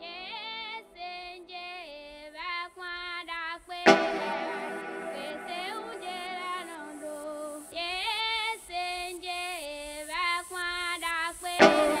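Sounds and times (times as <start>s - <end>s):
song with slow sung notes: 3.8s - 8.9s, 11.5s - 12.0s
sharp hit: 3.9s - 7.1s.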